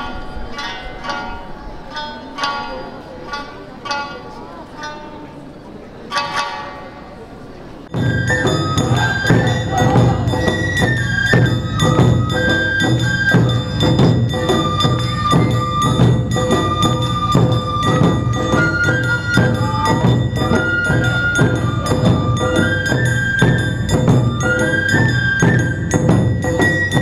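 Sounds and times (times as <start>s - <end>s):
high held melody line: 7.9s - 27.0s
fast percussion and drum beat: 8.0s - 27.0s.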